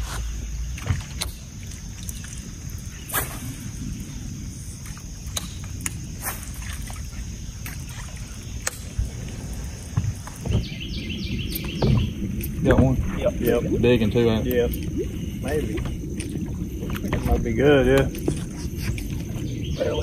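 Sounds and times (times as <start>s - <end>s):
boat engine rumble: 0.0s - 20.0s.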